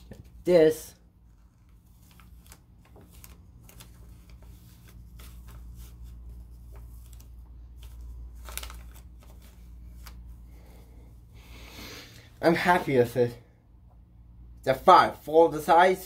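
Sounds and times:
paper rustling and crinkling: 1.2 - 10.4.

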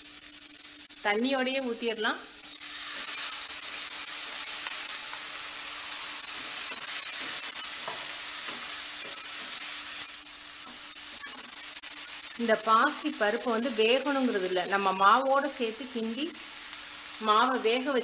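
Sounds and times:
loud sizzling in hot oil: 0.0 - 18.0.

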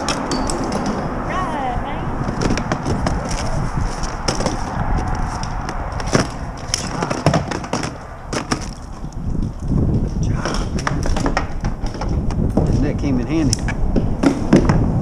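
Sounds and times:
steady low rumble: 0.0 - 15.0
gear knocking on plastic kayak hull: 10.6 - 12.8.

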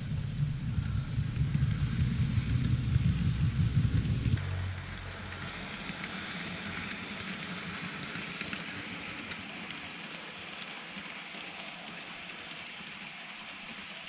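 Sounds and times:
low rumble: 0.0 - 6.2
model train whirring: 0.0 - 14.0.

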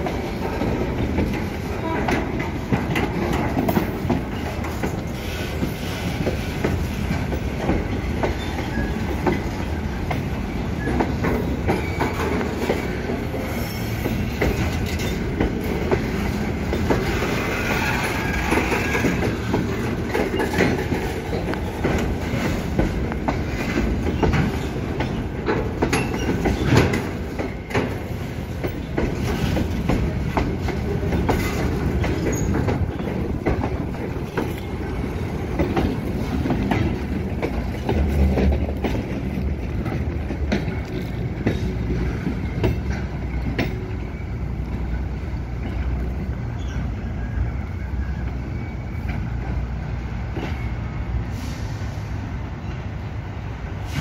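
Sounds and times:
wheels clacking over rail joints: 0.0 - 51.2
train wheels rumbling on rails: 0.0 - 54.0
faint wheel squeal: 46.5 - 49.4.

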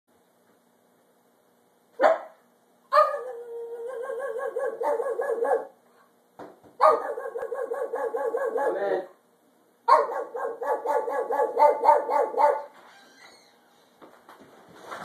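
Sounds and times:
dog barking: 2.0 - 5.8, 6.8 - 9.0, 9.9 - 12.7.

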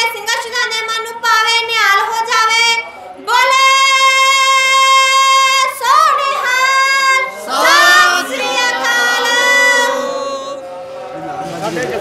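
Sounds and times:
voices shouting together: 7.4 - 10.6.

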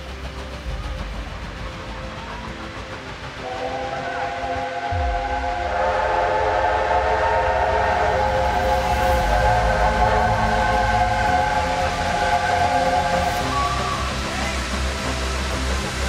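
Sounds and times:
train rumbling: 0.0 - 16.0
steam locomotive whistle: 3.3 - 16.0.

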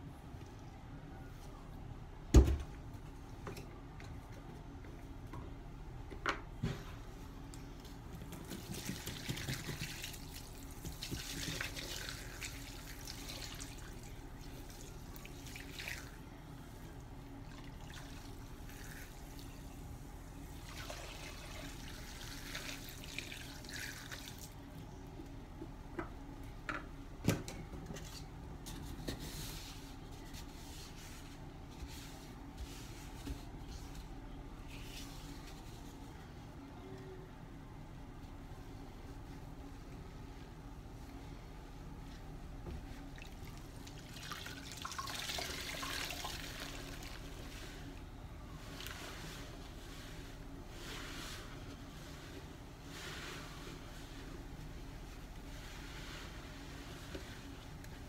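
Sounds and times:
liquid splashing into a sink: 8.5 - 13.9.

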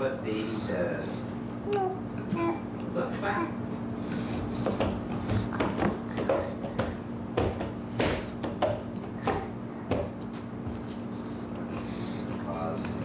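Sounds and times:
steady low hum: 0.0 - 13.0
hand slapping plastic tray: 4.6 - 10.4.

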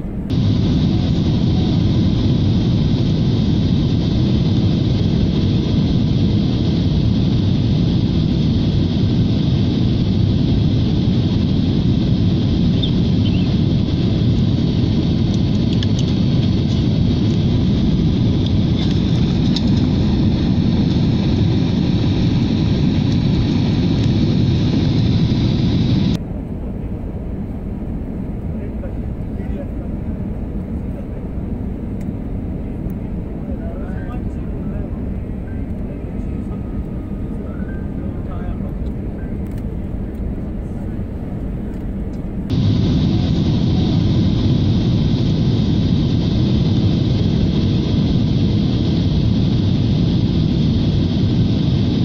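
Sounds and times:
airliner engines roaring in cabin: 0.0 - 52.0
faint high whine: 0.3 - 16.0, 42.5 - 52.0.

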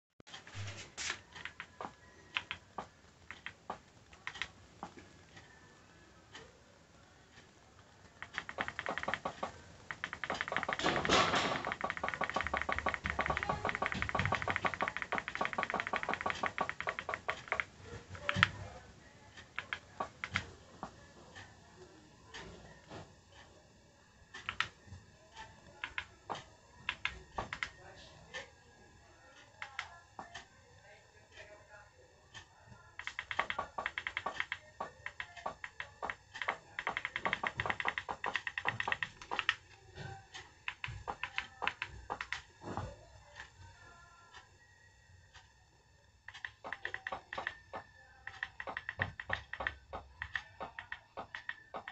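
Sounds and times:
rapid sharp clicks: 7.3 - 18.6, 24.3 - 27.8, 33.0 - 39.7, 40.4 - 42.6, 46.2 - 51.9.

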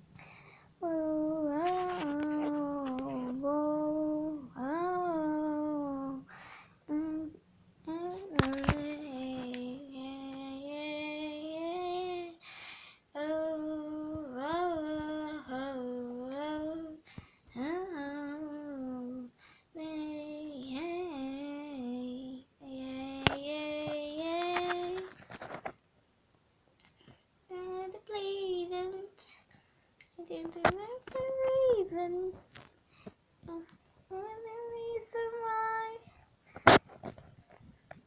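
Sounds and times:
girl singing unaccompanied: 0.0 - 25.3, 27.4 - 32.6, 33.4 - 36.2.

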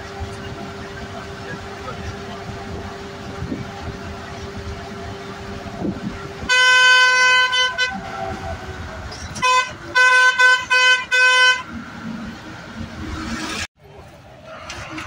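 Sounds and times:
bus engine running: 0.0 - 15.0
road noise: 0.0 - 15.0
bus horn blasts: 6.3 - 8.2, 9.2 - 11.8
bus horn short toots: 6.4 - 8.0, 9.3 - 11.7.

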